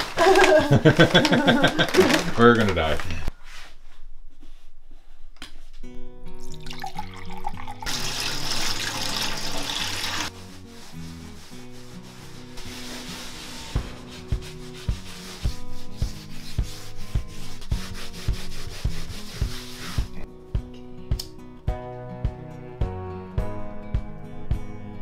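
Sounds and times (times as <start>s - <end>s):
soft acoustic guitar music: 5.8s - 25.0s
loud rushing rubbing noise: 10.2s - 20.2s
sponges scrubbing a wall: 10.2s - 20.3s.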